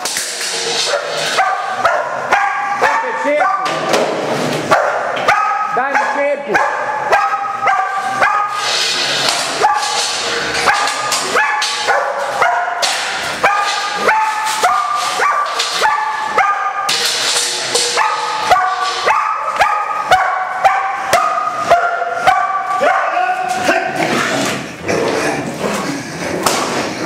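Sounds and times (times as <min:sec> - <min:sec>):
dog barking: 0:00.8 - 0:03.8, 0:04.7 - 0:08.7, 0:09.6 - 0:10.0, 0:10.6 - 0:16.9, 0:17.9 - 0:24.0.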